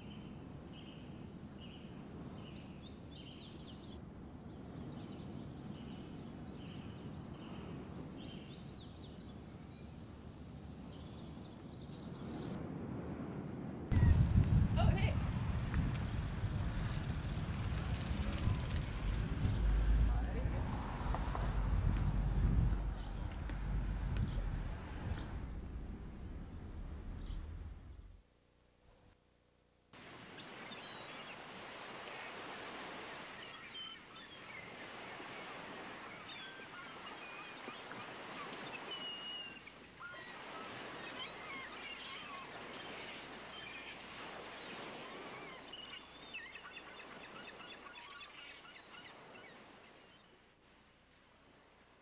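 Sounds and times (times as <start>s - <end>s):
birds chirping: 16.0s - 28.2s, 30.3s - 50.4s.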